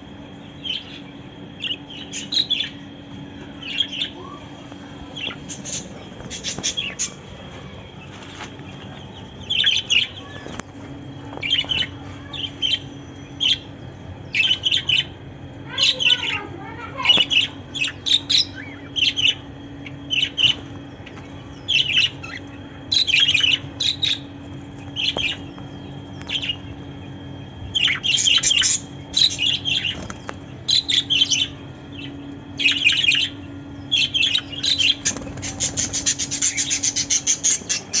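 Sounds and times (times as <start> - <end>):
budgerigars chirping: 33.9 - 38.0.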